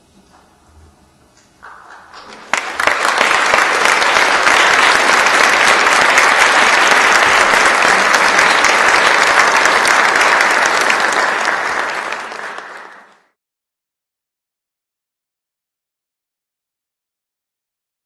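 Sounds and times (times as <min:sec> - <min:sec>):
audience applauding: 0:01.6 - 0:13.4.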